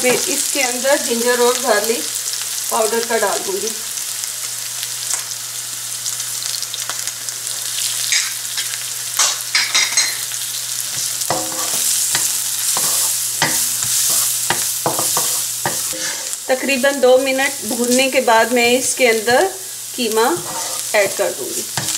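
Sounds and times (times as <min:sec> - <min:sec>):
onions sizzling in oil: 0:00.0 - 0:21.9
wooden spatula scraping pan: 0:11.0 - 0:16.4, 0:20.3 - 0:21.2.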